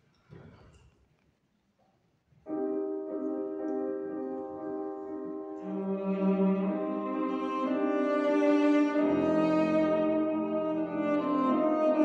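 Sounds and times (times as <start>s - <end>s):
grand piano: 2.4s - 12.0s
cello: 2.5s - 12.0s.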